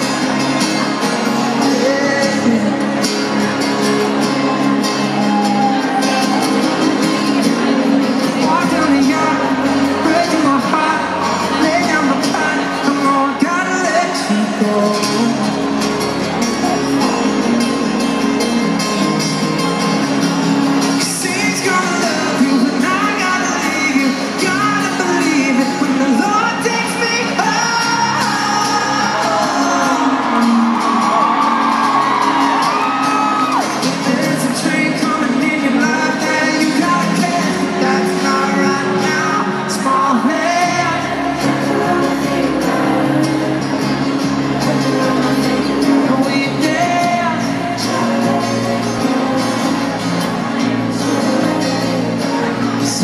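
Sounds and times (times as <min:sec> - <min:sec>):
sung vocals: 0:00.0 - 0:03.6, 0:07.4 - 0:19.4, 0:20.8 - 0:53.0
person singing: 0:00.0 - 0:53.0
strummed acoustic guitars: 0:00.0 - 0:53.0.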